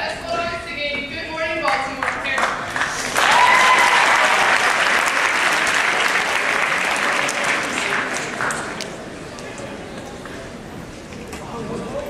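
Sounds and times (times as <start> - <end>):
audience applauding: 2.0 - 9.1.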